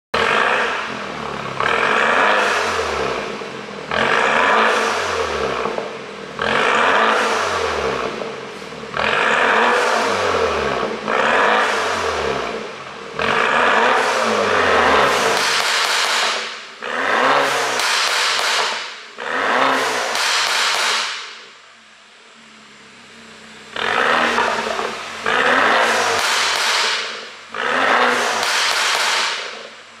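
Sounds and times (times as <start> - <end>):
exhaust popping and crackling: 0.2 - 21.4, 23.8 - 30.0
car engine idling: 0.2 - 30.0
car engine revving: 0.2 - 30.0.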